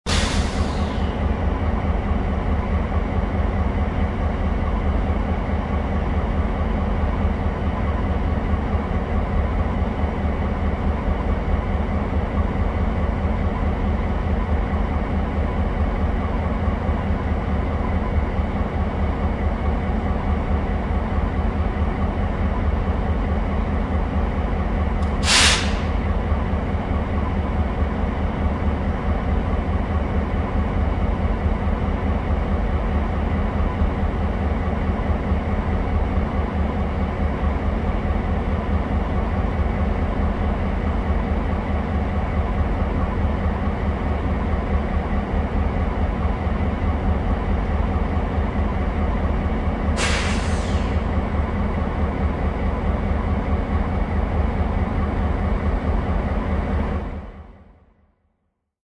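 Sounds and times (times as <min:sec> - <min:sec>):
diesel locomotives idling: 0:00.1 - 0:57.5
loud hiss: 0:25.2 - 0:25.9.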